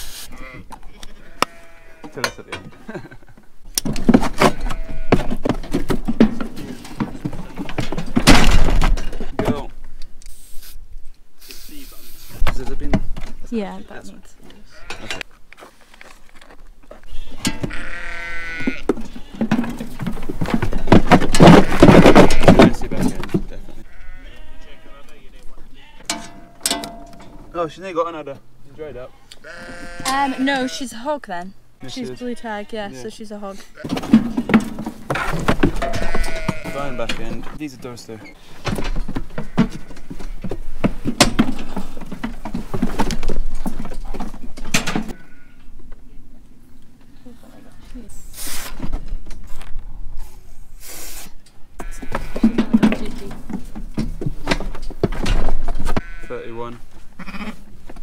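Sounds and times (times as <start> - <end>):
sheep bleating: 0.3 - 2.3, 4.4 - 5.4, 13.6 - 15.2, 17.0 - 19.6, 23.8 - 26.1, 29.1 - 31.0, 31.8 - 34.0, 35.2 - 37.1, 45.1 - 45.7, 51.8 - 52.9, 56.0 - 56.6, 57.2 - 57.7
sheep clattering in metal crate: 3.8 - 9.6, 17.4 - 24.2, 33.8 - 45.5, 51.8 - 56.2
knocks and rattles: 3.8 - 9.9, 18.8 - 23.7, 26.0 - 27.6, 33.8 - 45.2, 51.8 - 56.1.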